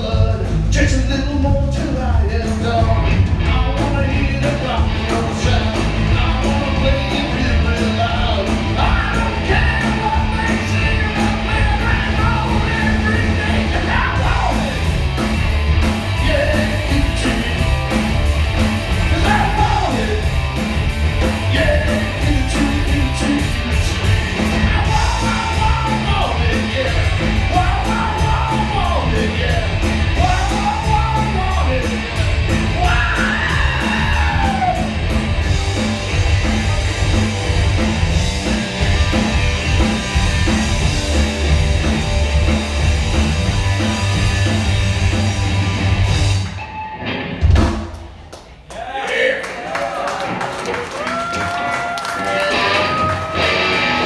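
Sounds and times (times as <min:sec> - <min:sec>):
man singing: 0:00.0 - 0:15.0, 0:16.1 - 0:18.0, 0:19.0 - 0:20.4, 0:21.2 - 0:35.0
live rock band playing: 0:00.0 - 0:48.6, 0:50.3 - 0:54.0.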